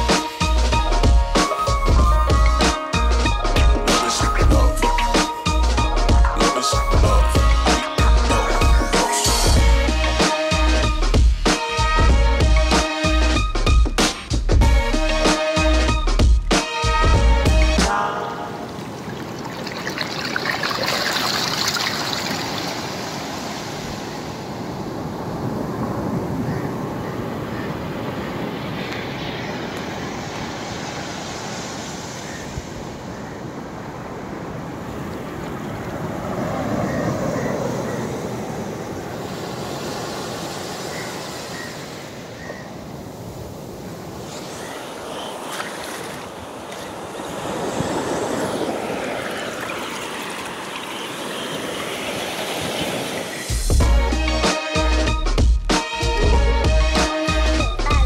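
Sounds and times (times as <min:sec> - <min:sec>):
ocean surf breaking: 0:06.4 - 0:09.6, 0:17.8 - 0:53.8.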